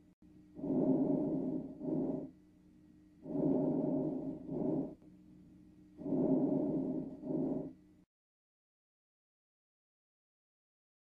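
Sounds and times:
soft lung breath sounds: 0:00.0 - 0:02.4, 0:03.2 - 0:05.0, 0:06.0 - 0:07.8.

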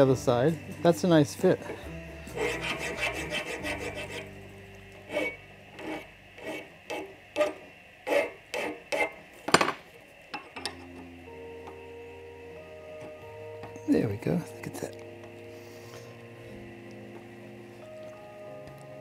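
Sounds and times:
hand file strokes on metal: 0:01.6 - 0:04.3, 0:05.0 - 0:09.2.

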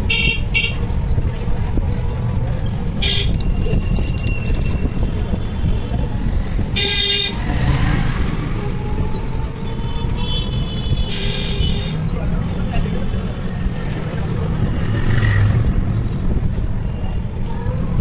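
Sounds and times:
high-pitched vehicle horn honking: 0:00.0 - 0:00.8, 0:03.0 - 0:03.7, 0:06.8 - 0:07.5, 0:09.9 - 0:12.0
low road noise rumble: 0:00.0 - 0:18.0.

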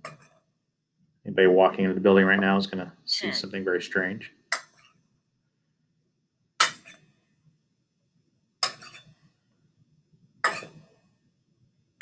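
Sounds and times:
metal spoon clinking on bowl: 0:08.6 - 0:09.2, 0:10.4 - 0:10.8.

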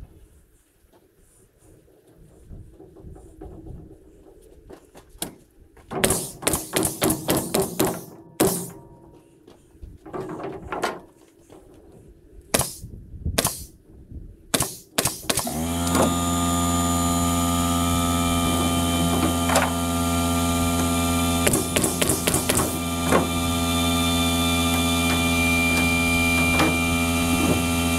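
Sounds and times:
air compressor humming: 0:15.0 - 0:27.9.

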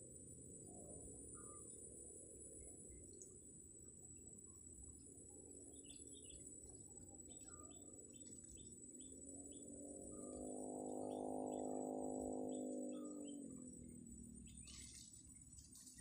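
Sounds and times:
high insect drone: 0:00.0 - 0:16.0
low multi-tone hum: 0:00.0 - 0:16.0
bird chirps: 0:12.4 - 0:13.7, 0:14.4 - 0:16.0.

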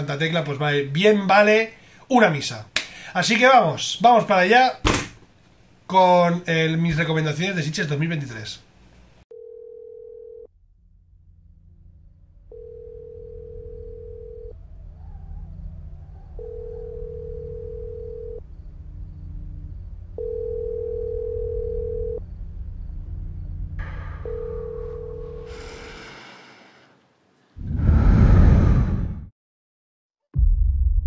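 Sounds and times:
low rumbling drone: 0:10.5 - 0:20.6, 0:22.2 - 0:27.0, 0:27.6 - 0:29.3
steady mid-pitched tone: 0:23.6 - 0:26.2
rush of noise: 0:27.6 - 0:29.3.

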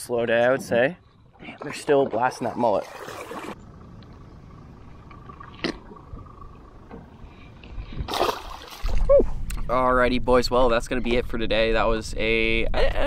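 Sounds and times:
splash into shallow water: 0:08.1 - 0:09.2.

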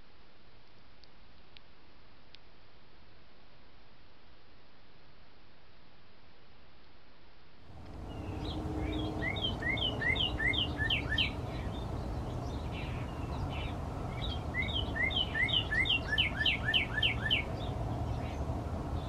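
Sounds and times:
bird singing slurred whistles: 0:08.1 - 0:11.8, 0:12.4 - 0:17.7.

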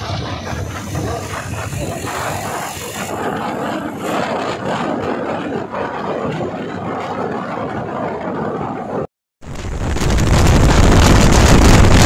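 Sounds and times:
vehicle road and engine noise: 0:00.0 - 0:08.2.

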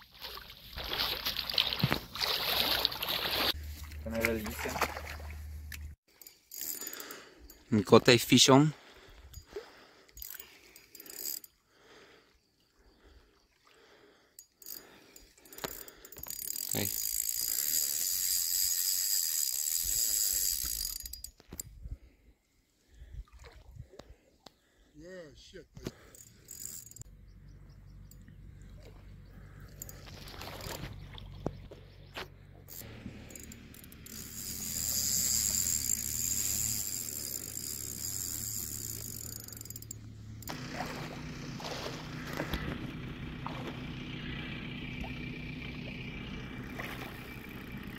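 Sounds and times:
water noise: 0:00.0 - 0:06.0, 0:28.1 - 0:47.9
wind: 0:00.0 - 0:47.9
fishing reel drag buzzing: 0:05.1 - 0:07.7, 0:08.9 - 0:11.6, 0:14.3 - 0:21.6, 0:25.9 - 0:27.1, 0:29.4 - 0:31.0, 0:32.2 - 0:47.9.

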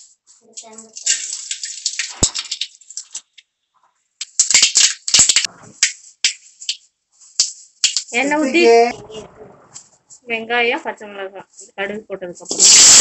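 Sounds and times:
seeds popping in hot oil: 0:00.0 - 0:03.5, 0:04.2 - 0:08.2, 0:12.5 - 0:13.0.

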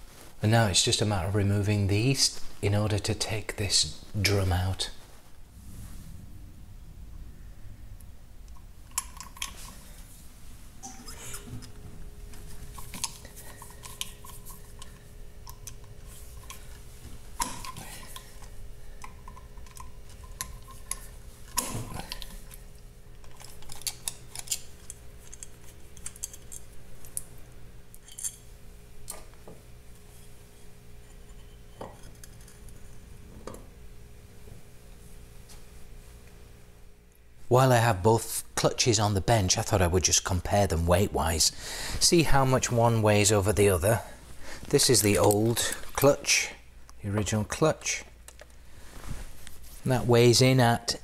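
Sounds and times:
faint steady hum: 0:00.0 - 0:51.0
metal parts being handled: 0:08.9 - 0:09.9, 0:12.4 - 0:16.8, 0:23.2 - 0:27.2, 0:28.0 - 0:28.5.

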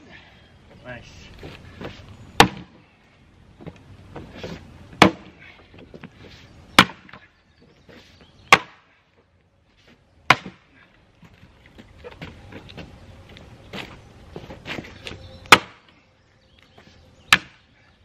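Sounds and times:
axe chopping wood: 0:02.4 - 0:02.8, 0:04.4 - 0:05.4, 0:06.8 - 0:07.3, 0:08.5 - 0:08.9, 0:10.3 - 0:10.7, 0:15.5 - 0:15.9, 0:17.3 - 0:17.6.

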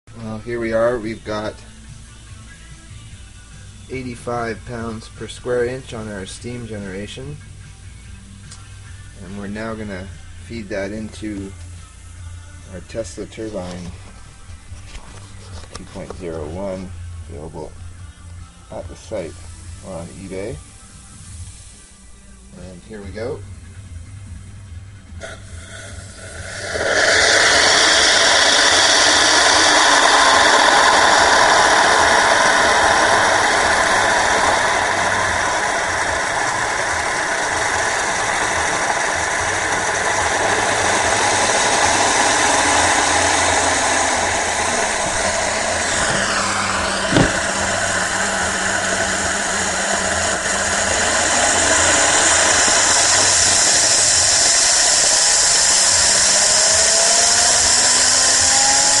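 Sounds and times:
steam hissing through turbine: 0:18.7 - 0:23.3, 0:25.2 - 0:59.0.

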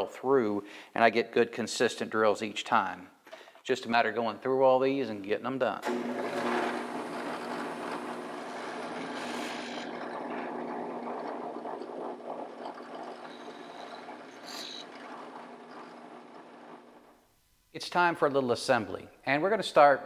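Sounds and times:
drill bit cutting plywood: 0:05.8 - 0:17.2
drill press motor hum: 0:05.8 - 0:17.2.

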